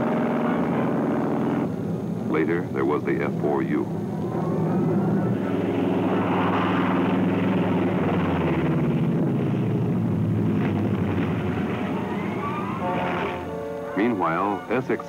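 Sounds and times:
radial piston engine droning: 10.9s - 15.0s.

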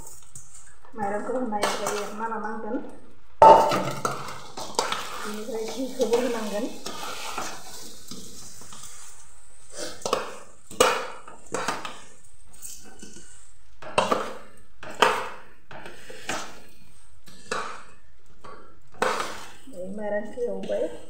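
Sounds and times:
metal spoon scraping a pot: 3.7s - 16.6s.

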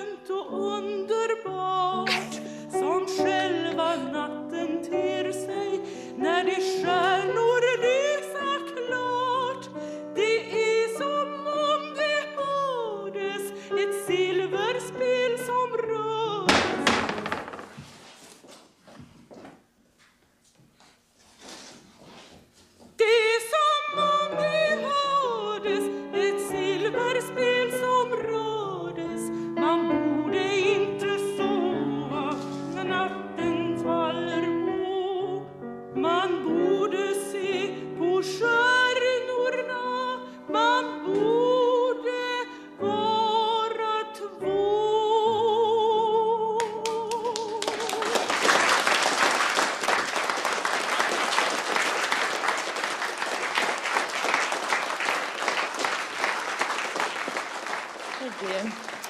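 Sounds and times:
woman singing opera: 0.0s - 16.5s, 23.0s - 48.4s
audience applause: 46.8s - 59.0s.

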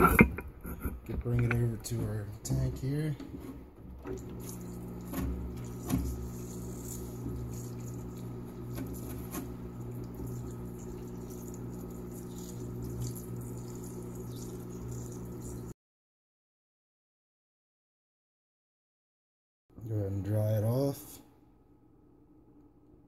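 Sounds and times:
electric pump humming: 0.0s - 15.8s
liquid trickling: 4.0s - 15.7s.

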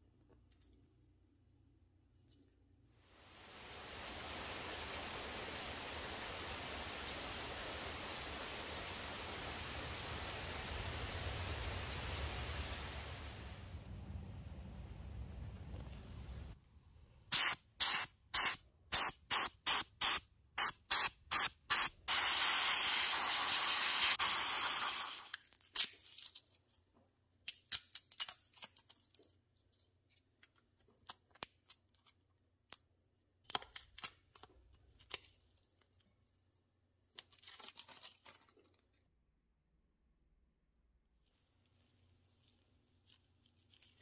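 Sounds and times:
handheld sprayer spraying: 17.3s - 25.3s
tape and foil peeling and crinkling: 23.9s - 32.8s, 33.4s - 36.1s, 37.0s - 39.0s, 41.3s - 44.0s.

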